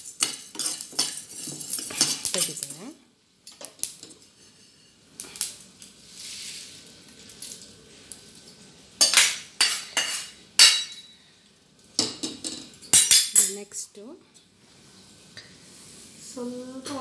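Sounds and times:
wok scraping metal plate: 0:00.0 - 0:02.7, 0:09.0 - 0:11.1.

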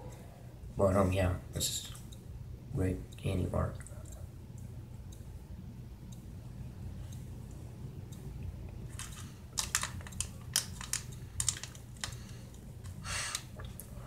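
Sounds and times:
wrapper crinkling: 0:08.9 - 0:12.4.

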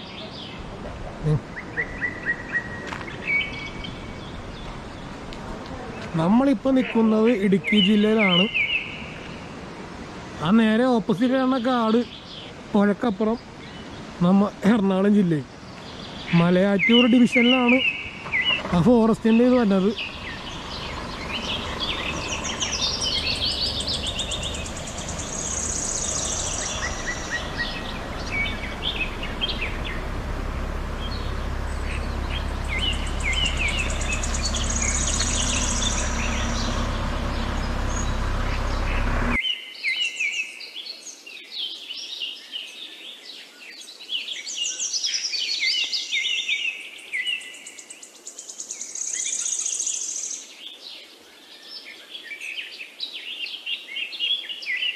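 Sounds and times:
birds chirping and calling: 0:00.0 - 0:09.5, 0:11.1 - 0:41.0
steady low rumbling noise: 0:18.8 - 0:39.4.

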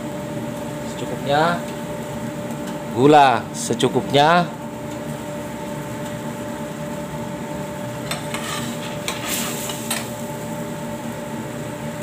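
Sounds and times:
steady background hum: 0:00.0 - 0:12.0
metal spoon scraping frying pan: 0:08.0 - 0:10.1.

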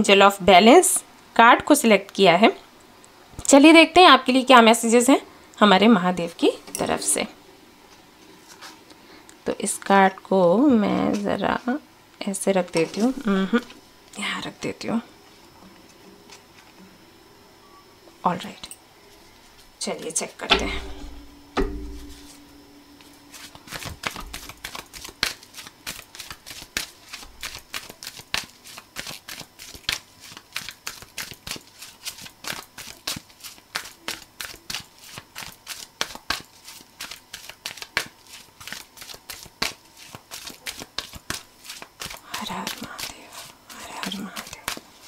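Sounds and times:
cards being shuffled: 0:23.3 - 0:45.0.

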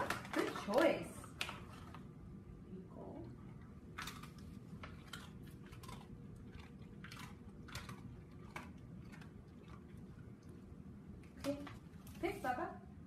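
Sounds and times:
dog chewing crunches: 0:03.7 - 0:12.2.

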